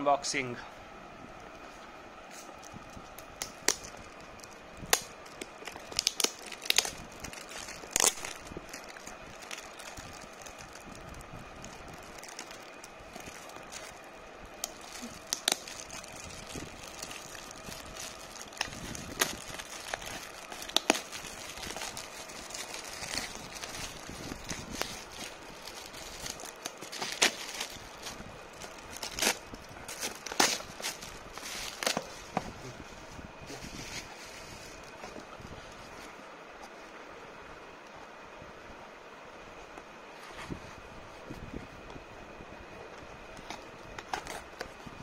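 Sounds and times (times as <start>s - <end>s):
foil gift wrap crinkling: 2.3s - 32.8s, 33.7s - 36.1s
wrap being torn: 4.9s - 10.7s.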